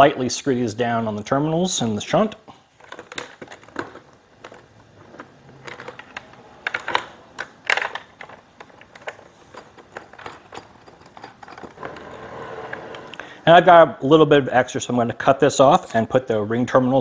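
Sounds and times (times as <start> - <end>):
small metal parts clicking: 2.8 - 12.1.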